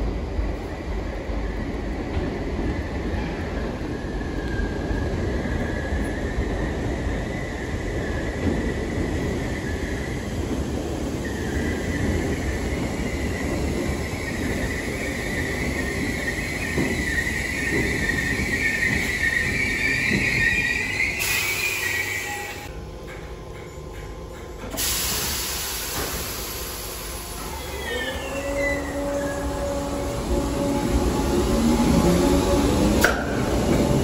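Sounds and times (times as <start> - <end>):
high-pitched brake squeal: 14.2 - 22.7, 27.4 - 30.8
train running rumble: 22.3 - 34.0
hiss of air: 24.8 - 27.5.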